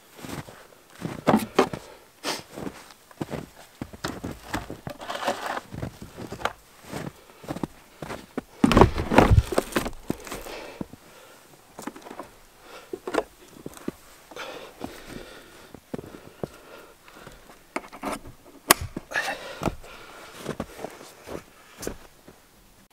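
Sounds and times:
footsteps crunching in snow: 0.0 - 10.9, 19.4 - 22.4
handling bumps on microphone: 8.6 - 10.0.

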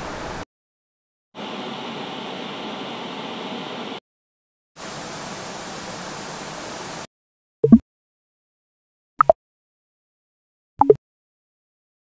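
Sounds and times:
tv static hiss: 1.4 - 4.0, 4.8 - 7.1.

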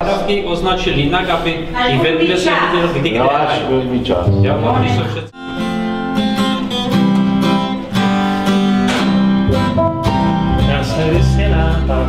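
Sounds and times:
acoustic guitar strumming: 4.2 - 12.0
harmonica melody: 4.3 - 12.0.

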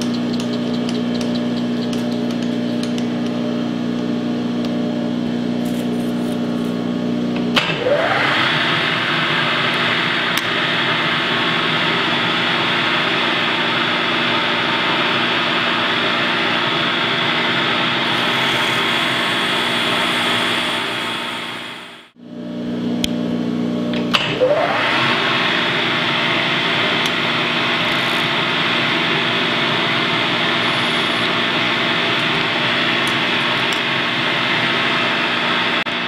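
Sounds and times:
milling machine spindle hum: 0.0 - 22.2, 24.3 - 36.0
high whine with hiss: 18.0 - 22.2.

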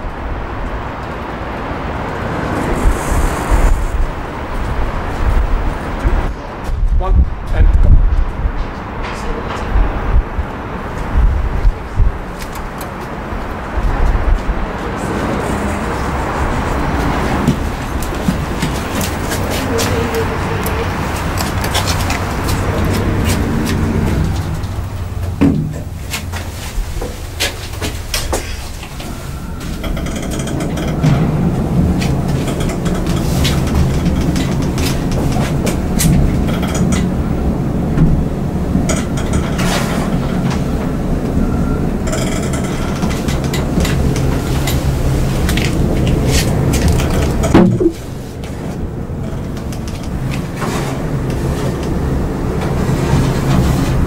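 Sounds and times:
elevator hum: 8.0 - 54.0
elevator doors shutting with a thump: 15.8 - 48.7.

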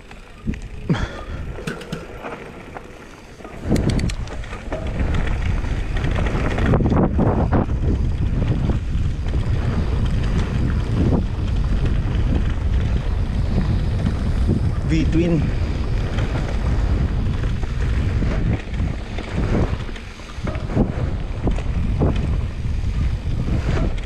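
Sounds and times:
bike rolling and rattling: 0.0 - 24.0
wind rushing over microphone: 0.0 - 24.0
sharp clicks: 3.6 - 4.3.

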